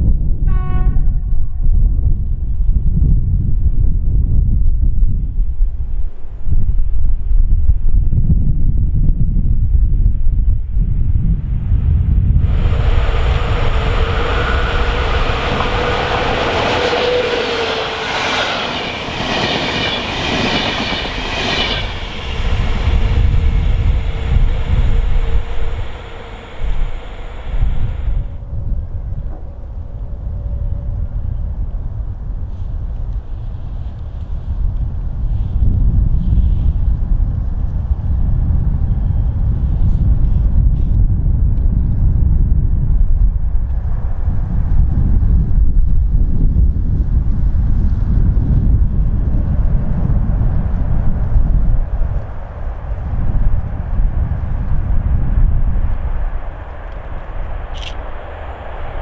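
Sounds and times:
wind rumble on microphone: 0:00.0 - 0:59.0
train passing: 0:11.4 - 0:34.2, 0:49.0 - 0:59.0.

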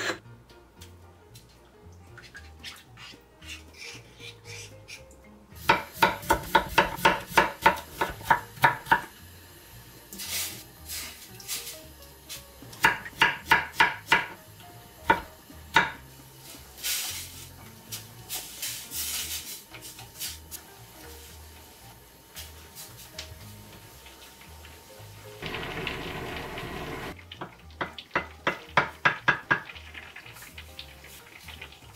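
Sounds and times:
knife chopping on wooden board: 0:05.7 - 0:09.1, 0:12.8 - 0:14.4.

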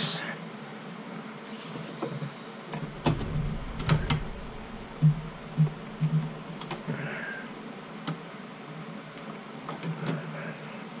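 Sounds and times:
dull knocks: 0:02.8 - 0:07.0.

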